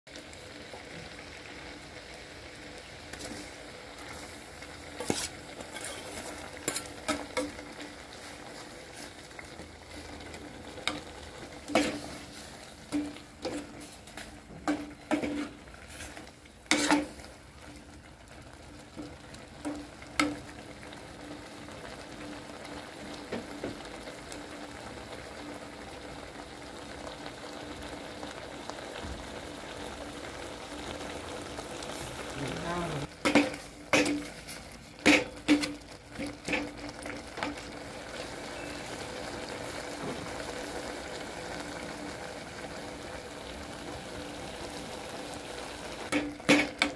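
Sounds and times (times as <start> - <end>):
meat sizzling in a pot: 0.1 - 46.9
metal ladle scraping a pot: 5.0 - 7.6, 10.8 - 17.3, 33.2 - 37.5.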